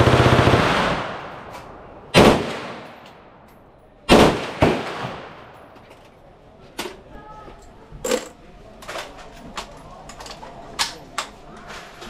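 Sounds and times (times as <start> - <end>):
rifle firing bursts with echo: 0.0 - 1.5, 2.1 - 3.0, 4.1 - 5.6.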